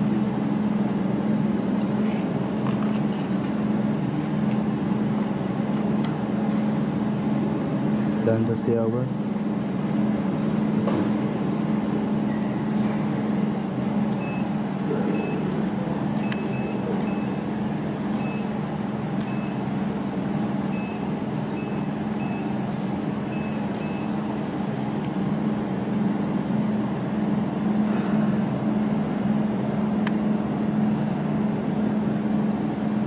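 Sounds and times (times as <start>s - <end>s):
welding machine low hum: 9.9s - 33.0s
short high beeps: 14.2s - 15.4s, 16.2s - 17.4s, 18.2s - 18.5s, 19.2s - 19.6s.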